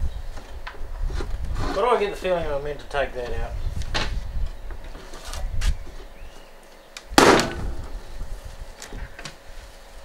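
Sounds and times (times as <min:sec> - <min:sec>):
loud sharp ringing crack: 0:07.2 - 0:07.9.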